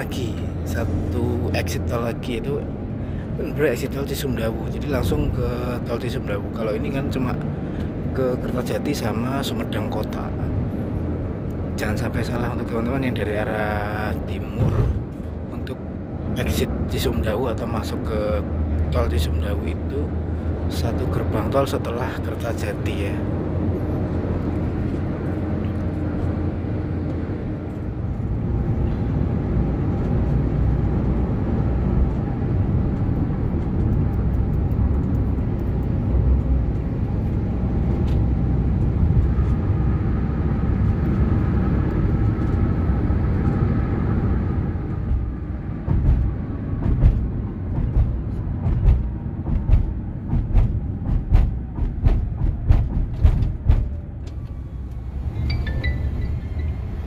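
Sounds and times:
tyres and engine rumbling: 0:00.0 - 0:57.0
tyres thumping over rumble strips: 0:14.4 - 0:15.3, 0:44.9 - 0:54.5.

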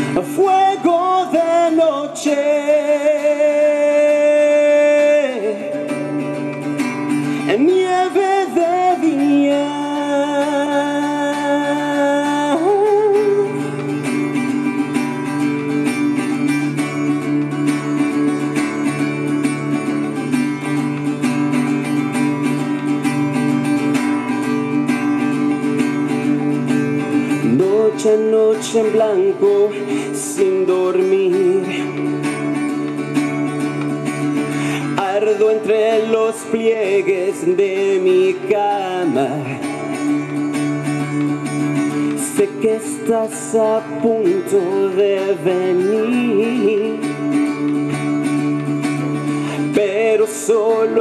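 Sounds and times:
man singing long notes: 0:00.0 - 0:14.3, 0:27.4 - 0:32.2
live band with guitar: 0:00.0 - 0:51.0.

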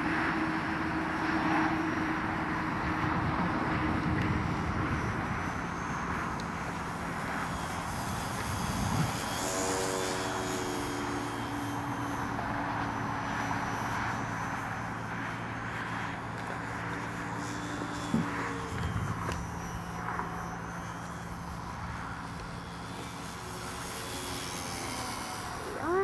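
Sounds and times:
model plane motor droning: 0:00.0 - 0:26.0
wind buffeting microphone: 0:02.2 - 0:09.8, 0:15.6 - 0:20.2.

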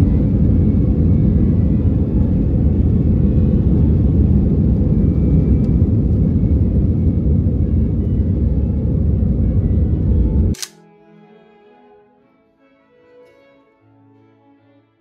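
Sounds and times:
jet engines rumbling: 0:00.0 - 0:10.7
soft string music: 0:00.0 - 0:15.0.

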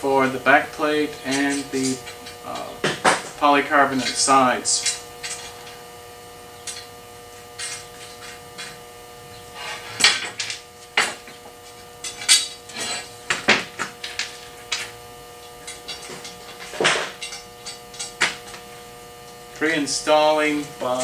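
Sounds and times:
steady hum: 0:00.0 - 0:21.0
small metal parts clinking: 0:09.8 - 0:14.9, 0:15.6 - 0:18.6.

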